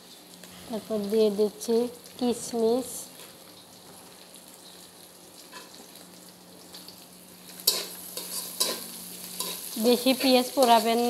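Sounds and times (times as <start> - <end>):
onions sizzling in oil: 0.0 - 11.0
metal spatula scraping pan: 7.6 - 10.9.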